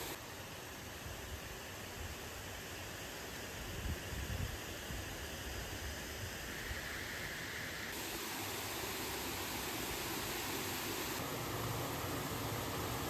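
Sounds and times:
water rushing over weir: 0:07.4 - 0:13.0.

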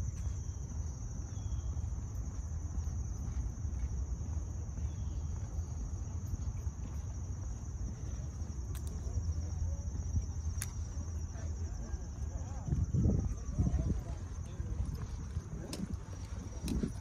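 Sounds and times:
insects pulsing chorus: 0:00.0 - 0:17.0.

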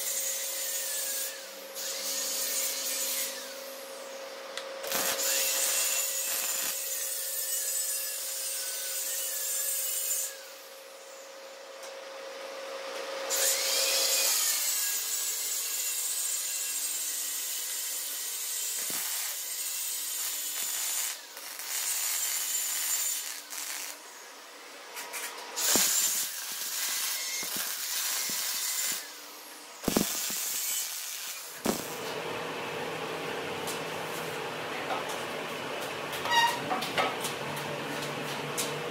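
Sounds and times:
arc welding crackle: 0:04.8 - 0:10.7, 0:13.3 - 0:32.1.

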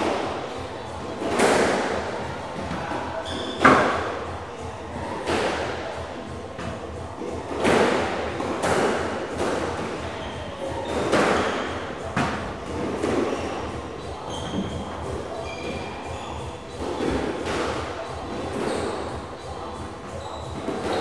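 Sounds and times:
squash ball hits: 0:01.2 - 0:02.0, 0:07.5 - 0:10.1, 0:10.8 - 0:14.9
shoes squeaking on wooden floor: 0:02.7 - 0:04.1, 0:06.7 - 0:21.0.

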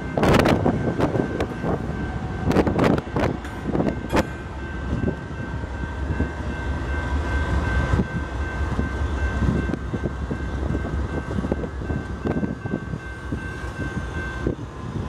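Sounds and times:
diesel locomotives rumbling: 0:00.0 - 0:15.0.

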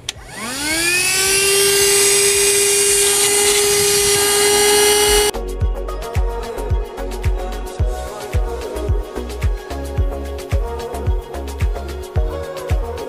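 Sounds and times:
vacuum cleaner motor whine: 0:00.0 - 0:05.3
background music: 0:04.2 - 0:13.0.

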